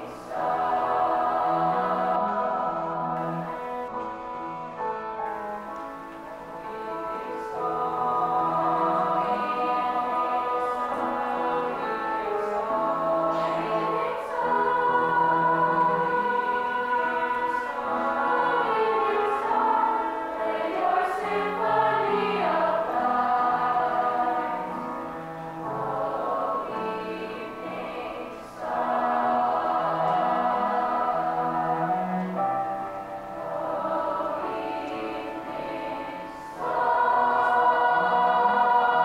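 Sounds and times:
choir singing in parts: 0:00.0 - 0:39.0
bowed cello low notes: 0:30.0 - 0:33.3.

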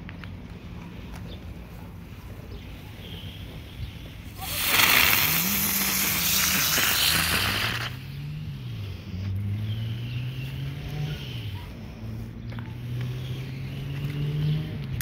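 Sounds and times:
passing vehicle engine hum: 0:00.3 - 0:15.0
firework spraying sparks hissing: 0:04.2 - 0:08.1.

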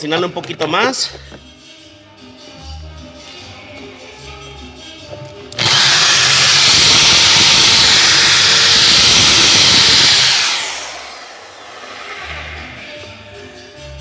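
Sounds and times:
power drill running: 0:05.6 - 0:12.7.

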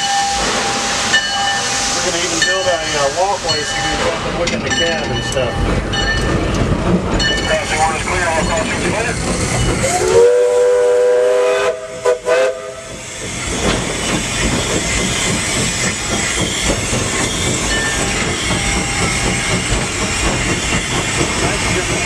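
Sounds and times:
locomotive working noise: 0:00.0 - 0:22.0
hiss of steam: 0:00.2 - 0:04.2
steam locomotive chime whistle: 0:09.8 - 0:13.0.

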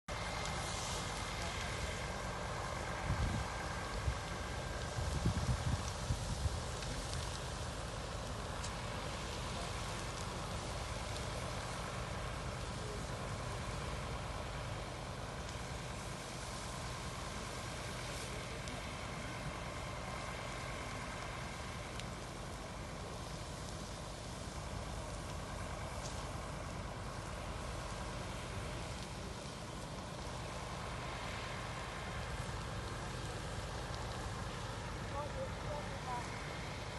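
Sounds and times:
fire engine motors idling: 0:00.1 - 0:36.9.

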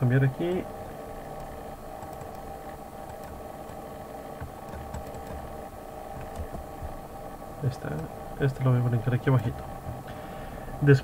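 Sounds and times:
steady low hum: 0:00.0 - 0:11.0
computer mouse clicks: 0:01.4 - 0:03.8, 0:04.4 - 0:05.5, 0:06.1 - 0:07.0.

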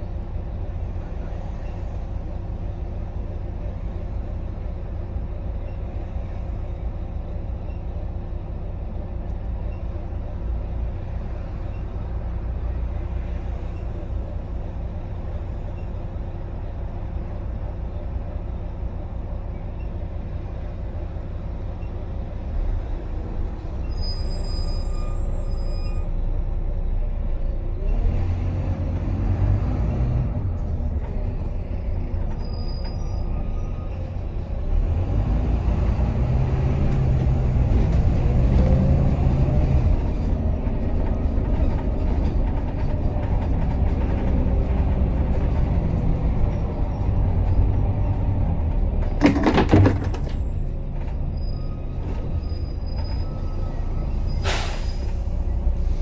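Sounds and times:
bus diesel engine idling: 0:00.0 - 0:27.9.

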